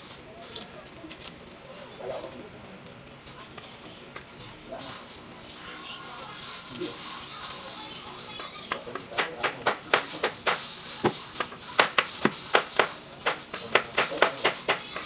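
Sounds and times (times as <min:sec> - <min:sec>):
knife chopping on plastic board: 0:08.9 - 0:15.0.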